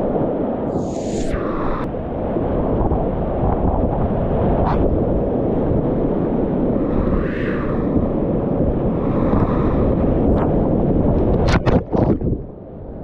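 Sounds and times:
deep rumble on microphone: 0.7s - 13.0s.

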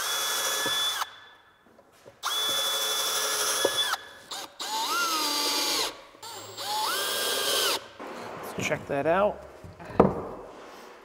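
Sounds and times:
cordless drill driving screws: 0.0s - 1.2s, 2.2s - 7.9s.

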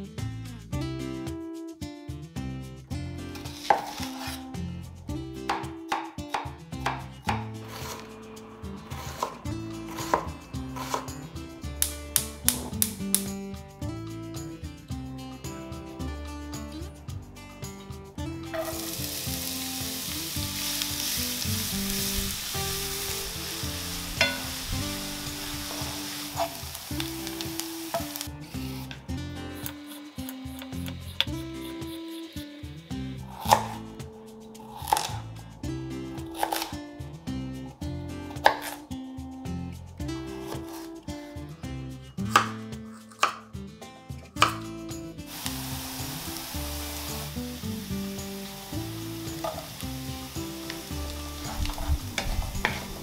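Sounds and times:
soft background music: 0.0s - 53.0s
knife chopping on wooden board: 3.6s - 4.3s, 42.3s - 43.4s
onion sizzling in frying pan: 18.5s - 29.0s, 45.3s - 53.0s.

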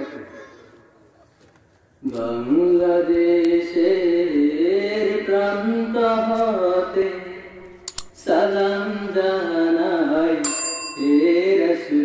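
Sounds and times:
boy singing unaccompanied: 8.2s - 10.4s.

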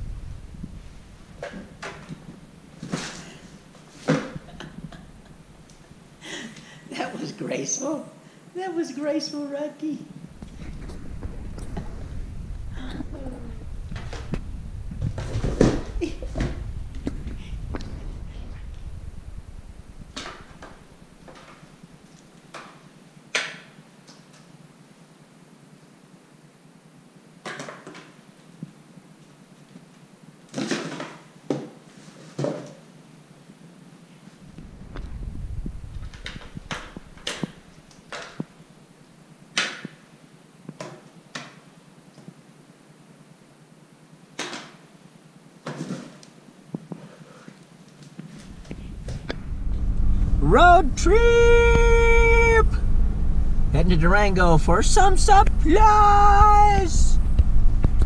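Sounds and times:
low rumbling scrape: 10.3s - 21.2s, 34.5s - 37.2s, 48.4s - 58.0s.

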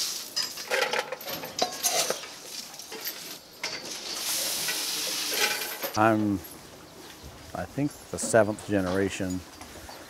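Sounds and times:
grain feed pouring onto hay: 0.0s - 0.3s.

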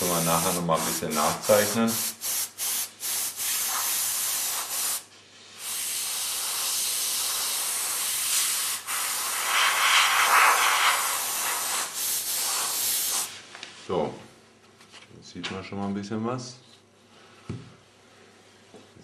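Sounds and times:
airbrush hissing: 0.0s - 13.4s.

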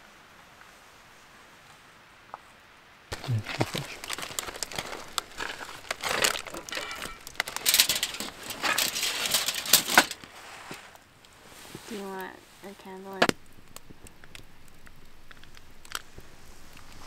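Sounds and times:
packaging crinkling and rustling: 3.1s - 10.3s.

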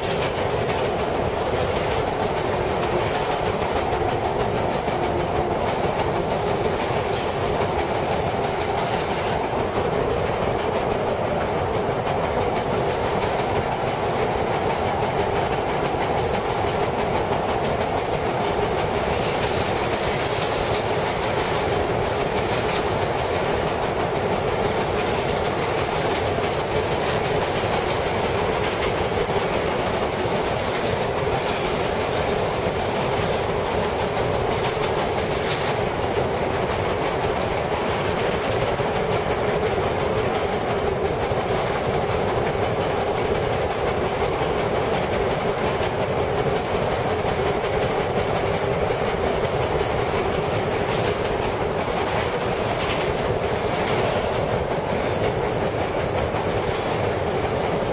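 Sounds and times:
flat wheels pounding: 0.0s - 11.2s
subway car rumble: 0.0s - 57.9s
wheels clacking over rail joints: 0.0s - 57.9s.

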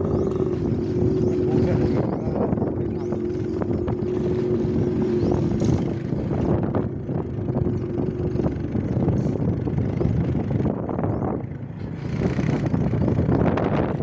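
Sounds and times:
motorcycle engine running: 0.0s - 14.0s
wind buffeting microphone: 0.0s - 14.0s.

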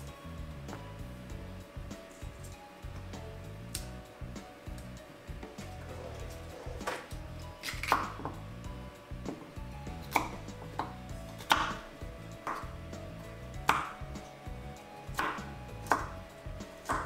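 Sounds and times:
knife chopping on cutting board: 6.6s - 8.4s, 9.3s - 12.7s, 13.6s - 14.0s, 15.1s - 17.0s.

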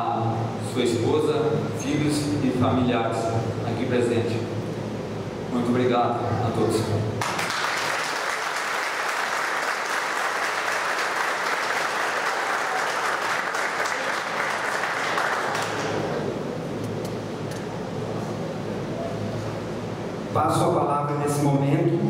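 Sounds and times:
audience applauding: 7.2s - 16.2s.

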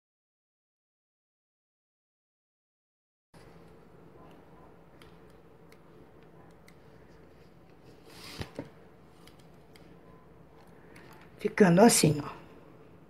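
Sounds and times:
low steady hum: 3.4s - 13.0s.

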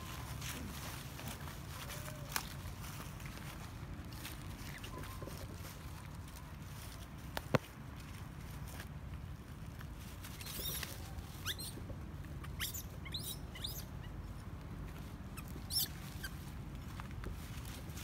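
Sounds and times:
baby monkey squeaking: 4.7s - 5.2s, 10.3s - 14.4s, 15.3s - 16.4s.

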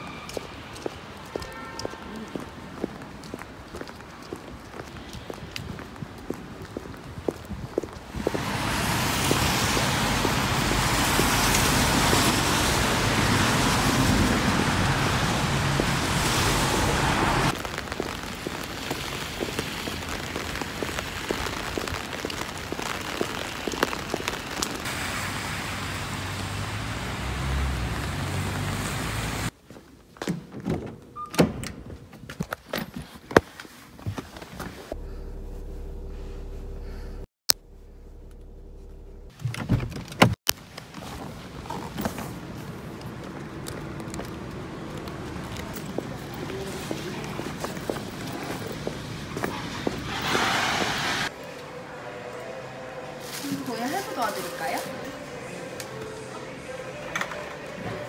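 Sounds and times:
car interior low hum: 34.9s - 40.0s.

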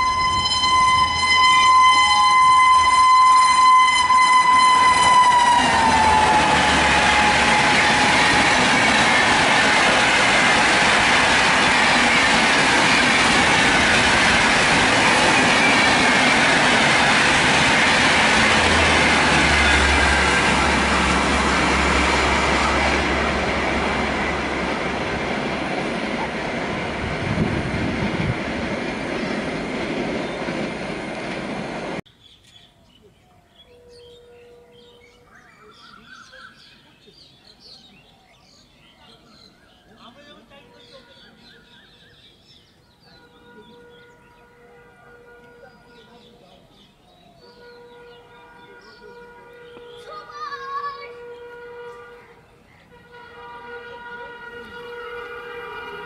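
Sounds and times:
train wheels clattering on rail: 5.9s - 22.2s
birds chirping: 32.1s - 56.0s.

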